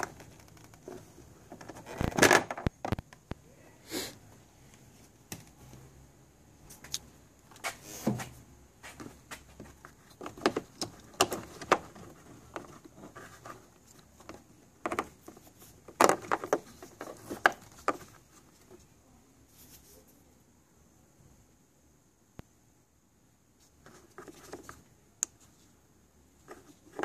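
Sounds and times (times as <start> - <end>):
hard plastic clicking and rattling: 9.6 - 18.2.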